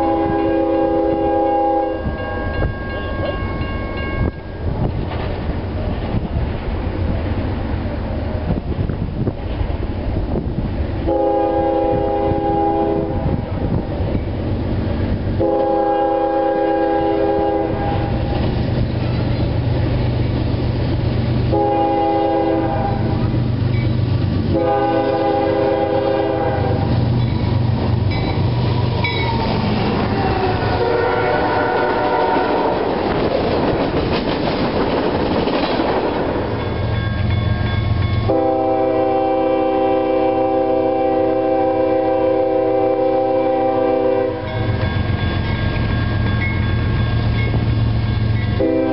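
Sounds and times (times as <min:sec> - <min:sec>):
locomotive air horn blasts: 0:00.0 - 0:02.2, 0:11.0 - 0:13.4, 0:15.4 - 0:18.3, 0:21.5 - 0:23.3, 0:24.5 - 0:27.0, 0:30.1 - 0:32.9, 0:38.2 - 0:44.8, 0:48.6 - 0:48.9
locomotive engine rumble: 0:00.0 - 0:48.9
train wheels on rails: 0:00.0 - 0:48.9.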